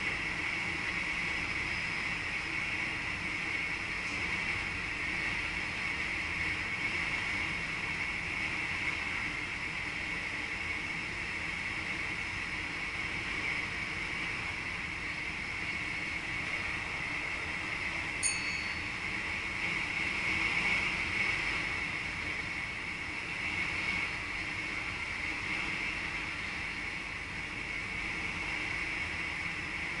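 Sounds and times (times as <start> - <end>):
train cab running noise: 0.0 - 30.0
short bright chime: 18.2 - 19.0.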